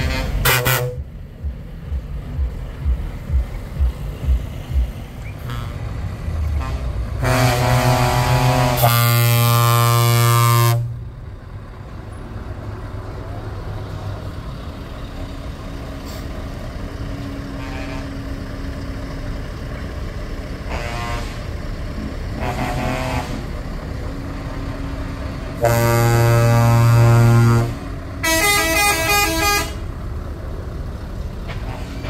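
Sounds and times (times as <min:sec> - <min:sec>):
truck air horn blasts: 0:00.0 - 0:01.2, 0:05.2 - 0:11.0, 0:17.5 - 0:18.3, 0:20.6 - 0:21.6, 0:22.4 - 0:23.7, 0:25.5 - 0:29.9
truck engine running: 0:00.0 - 0:32.0.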